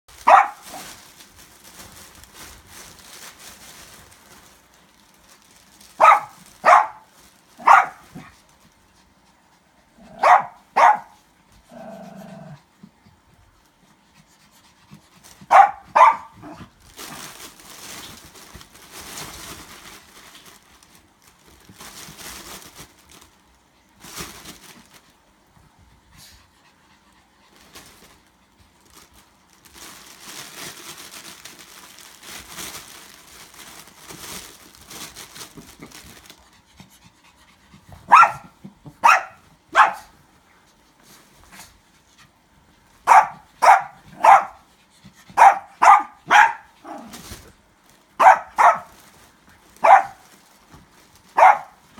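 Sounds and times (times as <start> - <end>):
fabric tunnel rustling: 0.1 - 8.6, 45.4 - 51.9
small dogs yapping: 0.2 - 0.8, 6.0 - 8.3, 10.1 - 11.2, 15.4 - 16.7, 38.0 - 40.1, 43.0 - 44.6, 45.3 - 47.2, 48.2 - 49.0, 49.8 - 50.3, 51.4 - 51.8.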